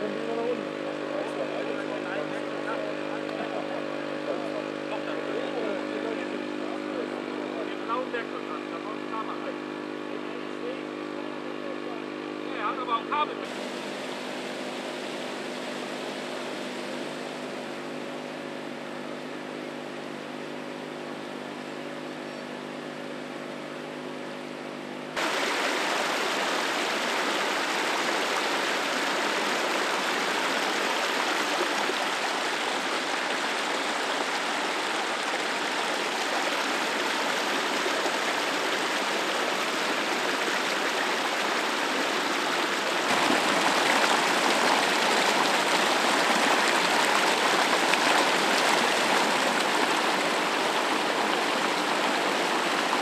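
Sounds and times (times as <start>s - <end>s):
mechanical hum: 13.3s - 53.0s
water gushing onto ground: 25.2s - 53.0s.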